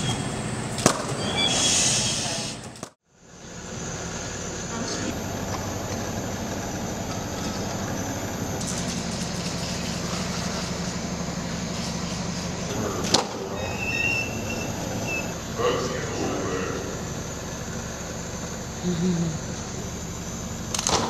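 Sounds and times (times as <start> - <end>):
low mechanical rumble and hum: 0.0 - 21.0.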